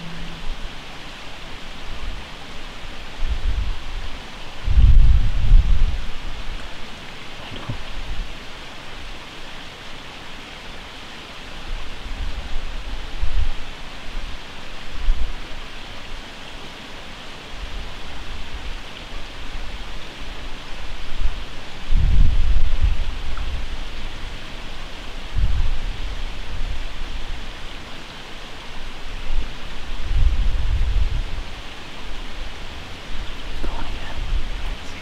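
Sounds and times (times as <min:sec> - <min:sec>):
wind buffeting microphone: 0:00.0 - 0:08.4, 0:20.8 - 0:24.5, 0:25.1 - 0:27.5, 0:29.1 - 0:35.0
outdoor hiss: 0:00.0 - 0:35.0.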